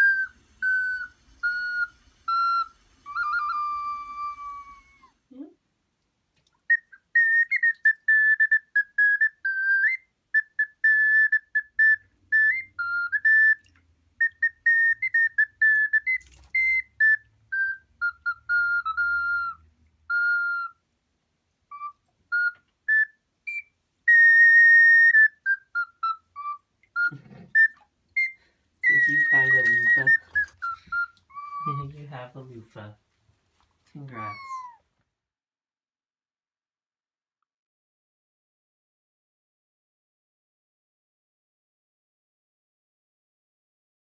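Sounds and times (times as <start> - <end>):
high whistle-like melody: 0.0 - 5.2, 6.7 - 20.8, 21.7 - 32.0, 34.1 - 34.7.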